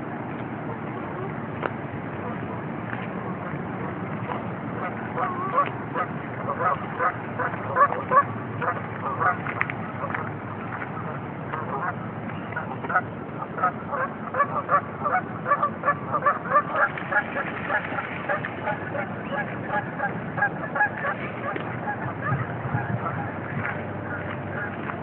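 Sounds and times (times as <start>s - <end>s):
low background rumble: 0.0s - 25.0s
geese honking: 4.3s - 9.4s, 11.6s - 12.0s, 12.6s - 24.9s.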